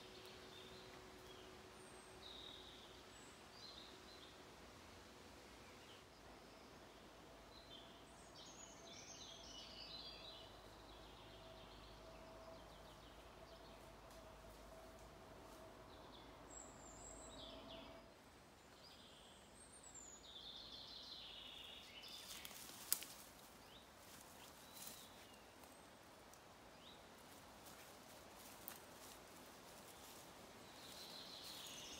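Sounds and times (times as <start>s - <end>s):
small birds chirping: 18.6s - 31.9s
rustling: 22.1s - 25.8s.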